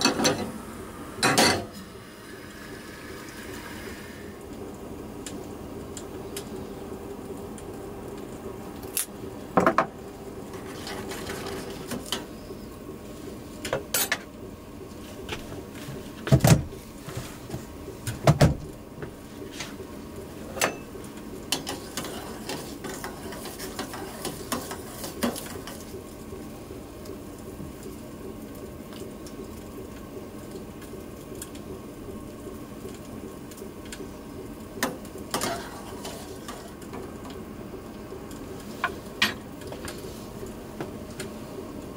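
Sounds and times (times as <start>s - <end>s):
pots and utensils clinking: 0.0s - 0.5s, 1.2s - 1.8s, 20.5s - 20.9s
steady low hum: 0.0s - 41.9s.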